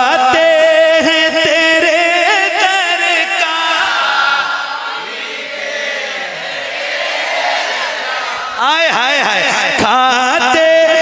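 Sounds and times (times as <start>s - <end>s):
man singing through a microphone: 0.0s - 4.1s, 8.6s - 11.0s.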